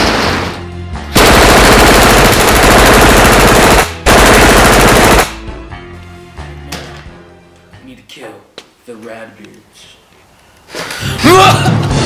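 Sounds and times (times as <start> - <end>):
automatic rifle fire bursts: 1.2 - 5.4.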